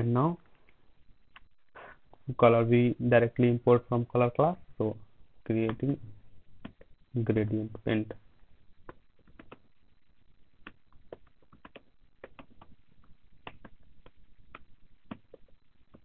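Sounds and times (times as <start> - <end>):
keyboard keys clicking: 10.6 - 12.8, 13.4 - 16.0.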